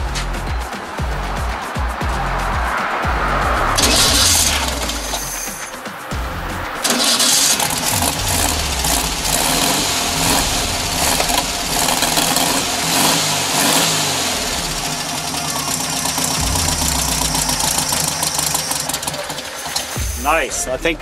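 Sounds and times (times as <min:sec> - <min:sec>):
car engine running: 0:00.0 - 0:20.5.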